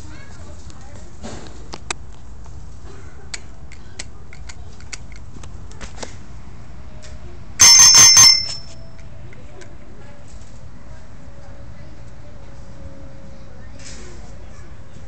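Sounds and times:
bicycle bell ringing: 0:07.6 - 0:09.0.

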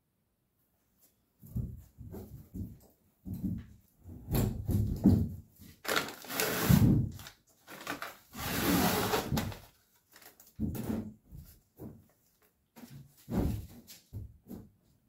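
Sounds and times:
plastic sheeting peeling: 0:05.8 - 0:10.6.

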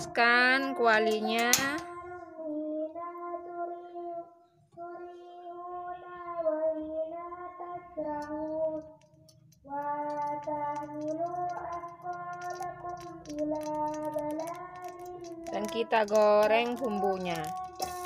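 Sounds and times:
high voice singing slow melody: 0:09.6 - 0:18.0.

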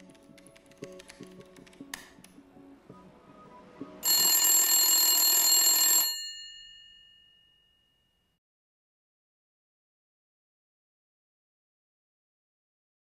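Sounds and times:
phone ringing: 0:04.0 - 0:07.8.

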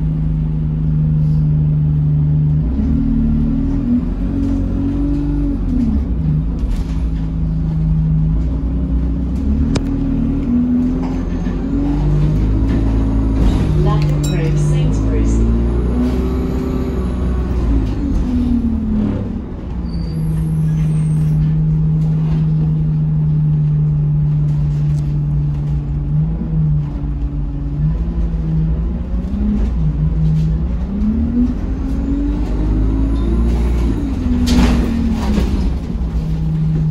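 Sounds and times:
bus engine: 0:00.0 - 0:36.9.

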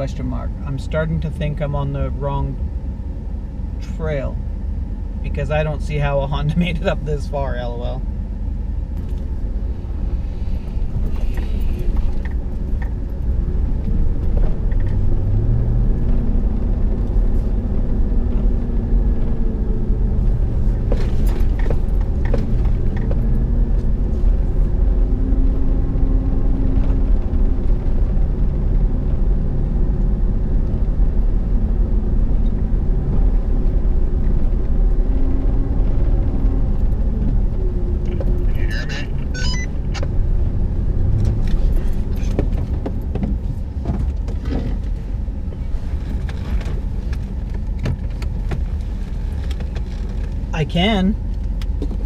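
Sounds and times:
truck engine rumble: 0:00.0 - 0:52.0.

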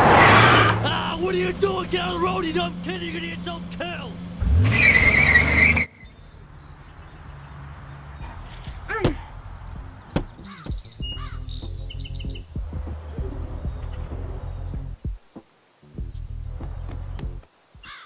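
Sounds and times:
van engine revving: 0:00.0 - 0:10.6, 0:11.2 - 0:15.1, 0:16.0 - 0:17.4
bird-like chirps: 0:05.0 - 0:18.0
quiet music of low held notes: 0:06.1 - 0:17.9.

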